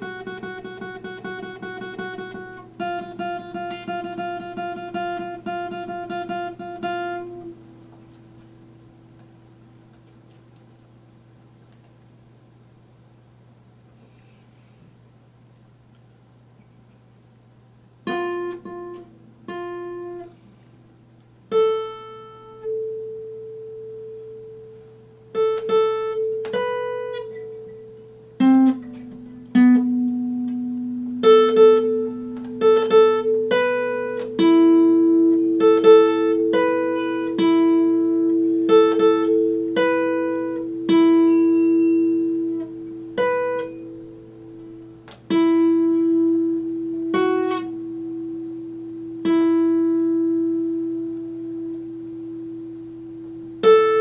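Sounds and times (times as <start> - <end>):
acoustic guitar strings plucked: 0.0 - 10.4, 18.0 - 20.5, 21.5 - 54.0
steady low hum: 0.0 - 54.0.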